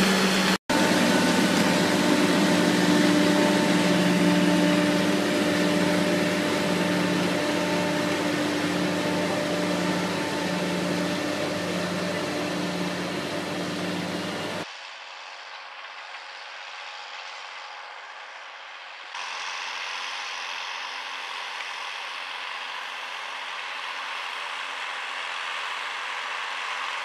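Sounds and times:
harvester machine humming: 0.0 - 14.6.

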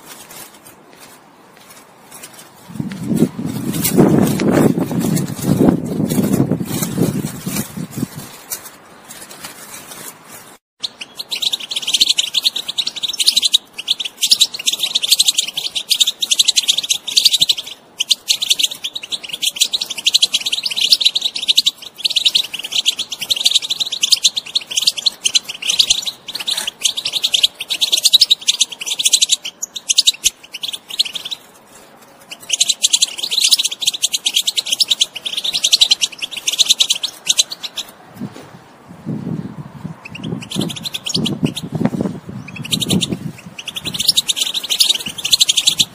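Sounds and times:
goldfinch twittering song: 10.8 - 31.5, 32.3 - 37.9, 40.0 - 45.9.

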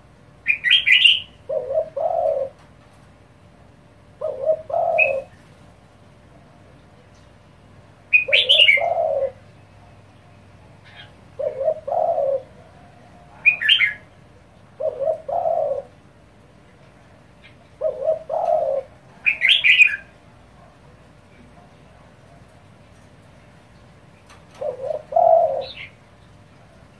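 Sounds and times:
dove cooing: 0.5 - 2.8, 4.0 - 5.8, 8.1 - 10.0, 10.6 - 16.2, 17.4 - 22.6, 24.3 - 26.9.

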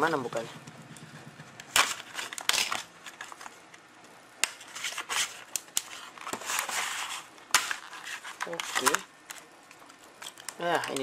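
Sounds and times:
plastic packaging crinkling and tearing: 1.7 - 3.7, 4.4 - 11.0
plastic snapping: 5.4 - 6.4.

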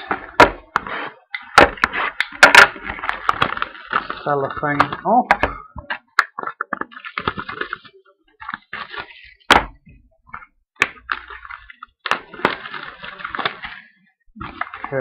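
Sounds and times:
cellophane tearing and crinkling: 1.7 - 5.1, 10.8 - 15.0.

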